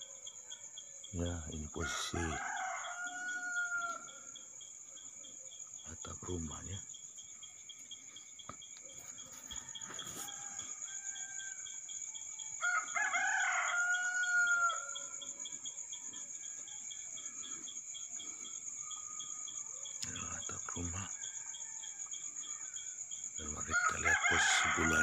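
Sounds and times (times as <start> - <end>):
crickets chirping: 0.0 - 25.0
rooster crowing: 1.7 - 4.4, 9.1 - 17.3, 21.1 - 22.9, 23.6 - 25.0.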